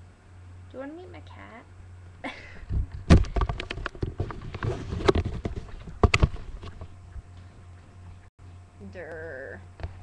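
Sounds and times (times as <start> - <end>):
microphone handling knocks: 2.7 - 7.2.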